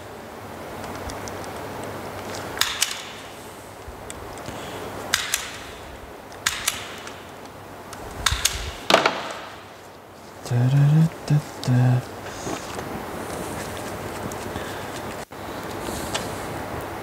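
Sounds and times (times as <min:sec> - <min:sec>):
sharp clicks and knocks: 0:00.8 - 0:03.4, 0:04.0 - 0:09.7.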